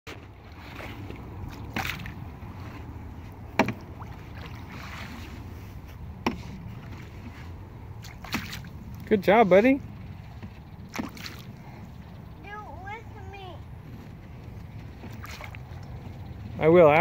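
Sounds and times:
paddle knocking canoe edge: 0:00.1 - 0:09.1, 0:10.3 - 0:11.6
paddle water swishing: 0:00.1 - 0:12.4, 0:13.0 - 0:16.7
low wind rumble: 0:00.1 - 0:17.0.

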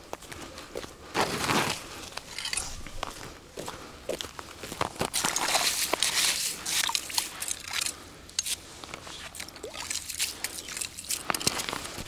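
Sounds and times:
metal skimmer scraping ice: 0:05.2 - 0:08.6.

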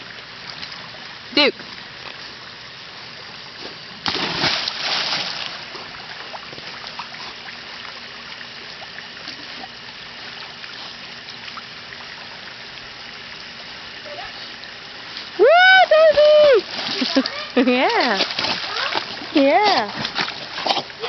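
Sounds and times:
pool water lapping and trickling: 0:00.0 - 0:21.0
dog splashing into pool: 0:04.0 - 0:06.0, 0:15.9 - 0:21.0.

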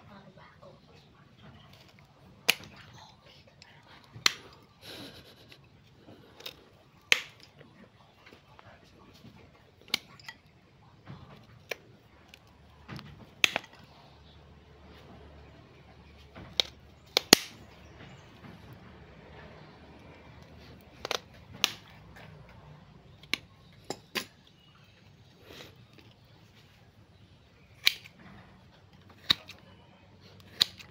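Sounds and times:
cutters snipping roots: 0:01.6 - 0:03.0, 0:03.9 - 0:07.6, 0:11.3 - 0:14.0, 0:16.2 - 0:17.8, 0:19.6 - 0:24.3, 0:27.6 - 0:28.2, 0:28.9 - 0:30.9.

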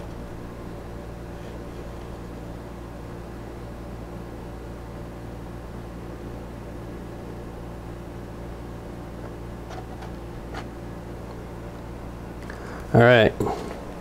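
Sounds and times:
low machine hum with hiss: 0:00.0 - 0:14.0.

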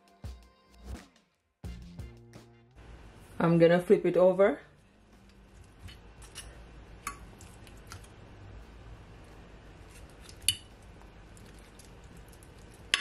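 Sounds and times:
metal tongs clinking on glass dish: 0:05.9 - 0:07.3.

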